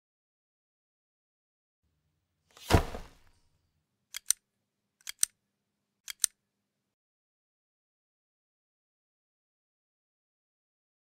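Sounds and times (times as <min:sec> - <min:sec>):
sharp double clicks: 0:05.0 - 0:05.3, 0:06.1 - 0:06.4.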